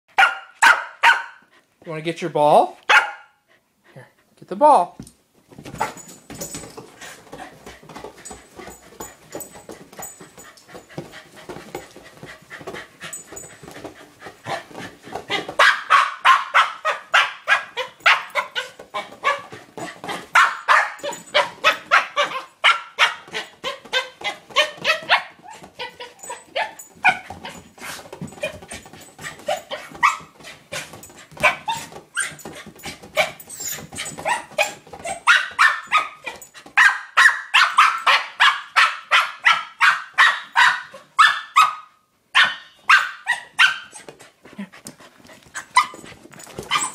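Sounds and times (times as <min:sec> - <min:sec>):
dog barking and yipping: 0:00.1 - 0:01.4, 0:02.9 - 0:03.4, 0:14.4 - 0:44.1, 0:45.5 - 0:46.9.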